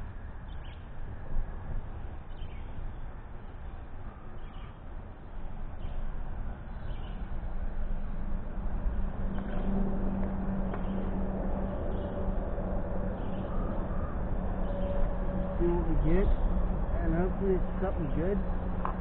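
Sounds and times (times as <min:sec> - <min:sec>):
low steady hum: 0:00.0 - 0:19.0
outdoor background noise: 0:00.0 - 0:19.0
faint bird chirps: 0:03.6 - 0:04.8.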